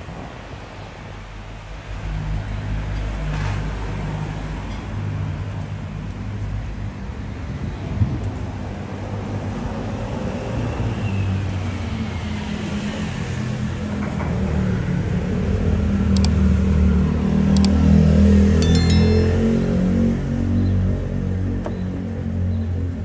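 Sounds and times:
street traffic noise: 0.0s - 23.0s
low steady music: 18.6s - 19.9s
short chime of ringing tones: 18.6s - 20.1s.

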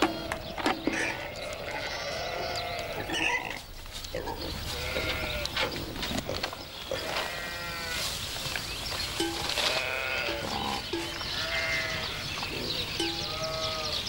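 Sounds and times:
sheep bleating: 0.9s - 3.6s, 4.7s - 5.5s, 6.9s - 8.1s, 9.5s - 14.0s.

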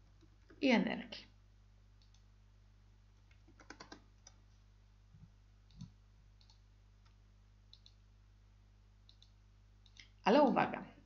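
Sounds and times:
keyboard keystrokes: 3.3s - 4.4s.

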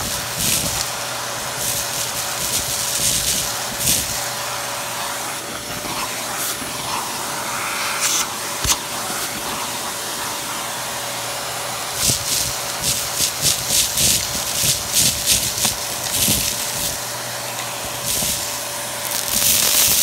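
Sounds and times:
vacuum cleaner motor whine: 0.0s - 20.0s.

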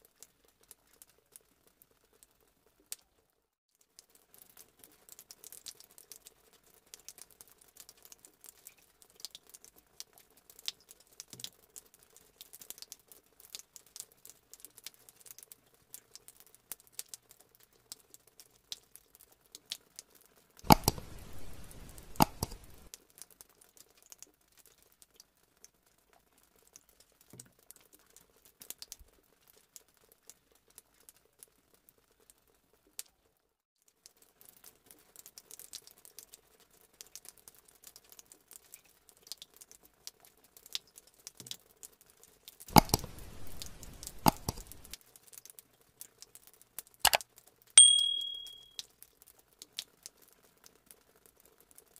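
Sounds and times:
scratchy plastic crackle: 42.7s - 45.0s.

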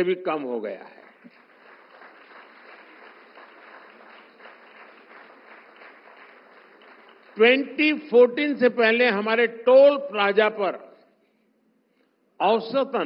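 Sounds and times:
audience applauding: 1.0s - 7.7s.

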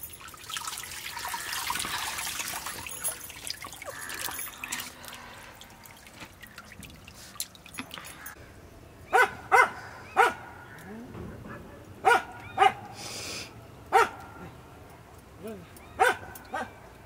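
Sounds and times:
water splashing into a pan: 0.0s - 8.4s
dog barking: 9.1s - 10.7s, 11.5s - 12.9s, 13.9s - 14.5s, 16.0s - 16.8s.

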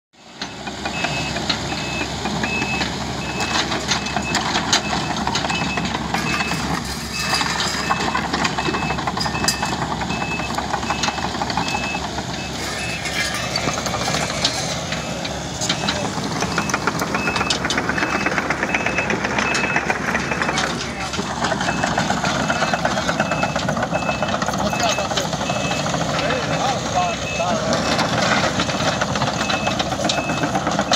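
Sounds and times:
excavator diesel engine: 0.2s - 30.9s
backup alarm beeping: 7.2s - 13.0s, 14.9s - 20.7s, 21.6s - 26.0s.

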